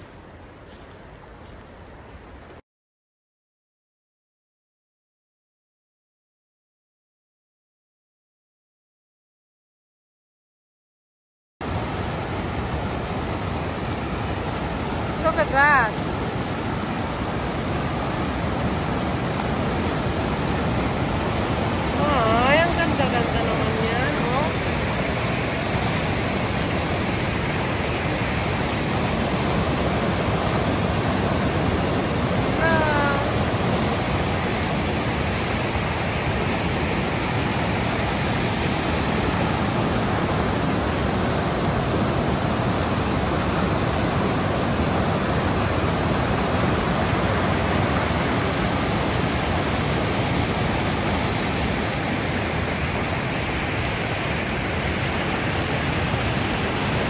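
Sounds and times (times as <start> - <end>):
water rushing over rocks: 11.6 - 57.0.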